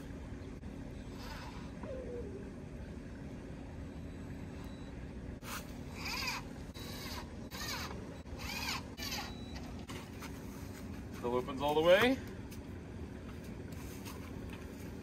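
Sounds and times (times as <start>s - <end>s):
cordless drill driving screws: 6.0s - 9.4s.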